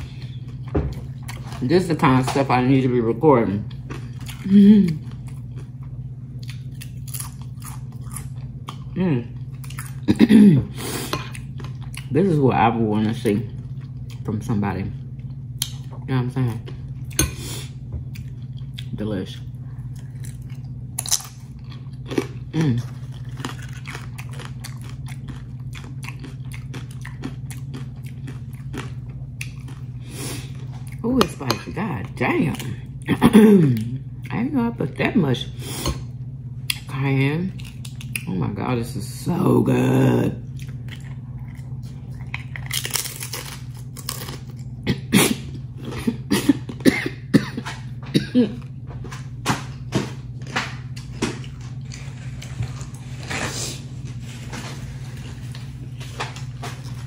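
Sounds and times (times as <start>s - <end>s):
person chewing crunchy chips: 0.0s - 34.3s, 37.5s - 38.3s, 39.8s - 57.0s
steady low hum: 0.0s - 57.0s
person coughing: 10.0s - 10.8s, 33.1s - 33.9s, 44.8s - 48.7s.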